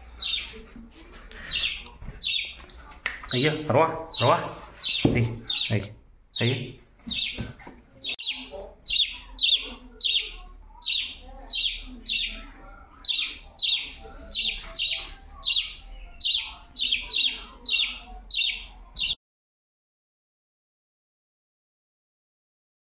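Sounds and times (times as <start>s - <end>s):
budgerigar chirping: 0.1s - 0.6s, 1.4s - 2.6s, 3.3s - 19.2s.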